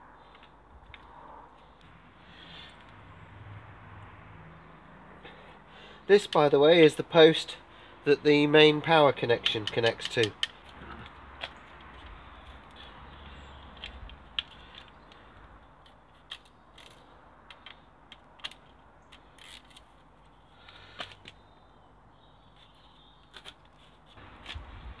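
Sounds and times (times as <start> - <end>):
socket ratchet clicking: 9.4 - 10.7.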